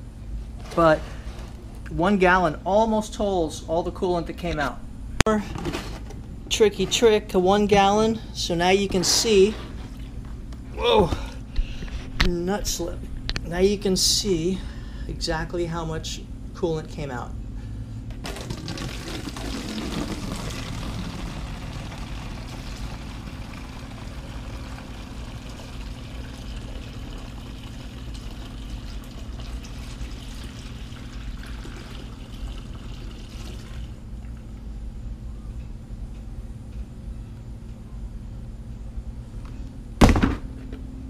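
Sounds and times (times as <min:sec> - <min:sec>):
liquid pouring through plastic funnel: 0:18.2 - 0:34.0.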